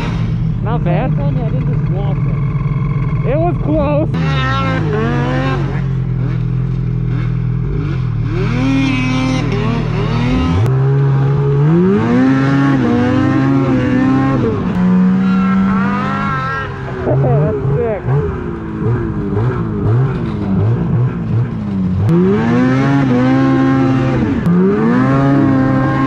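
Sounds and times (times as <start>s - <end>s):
snowmobile engine revving: 0.0s - 26.0s.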